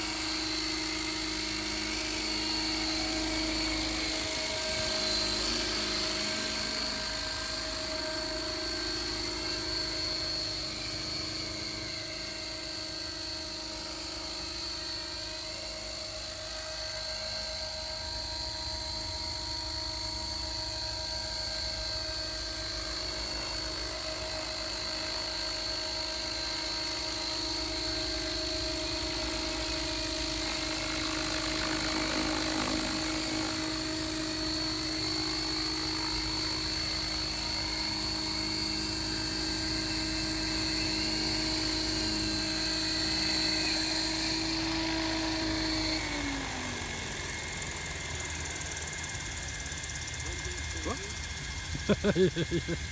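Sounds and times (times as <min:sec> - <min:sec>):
model helicopter high whine: 0:00.0 - 0:52.9.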